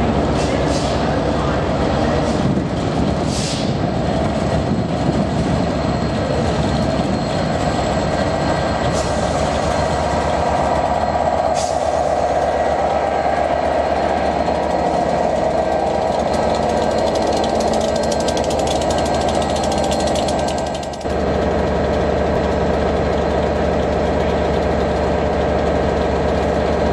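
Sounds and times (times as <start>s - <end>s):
diesel locomotive engine droning: 0.0s - 26.9s
sharp ticks: 16.4s - 21.1s.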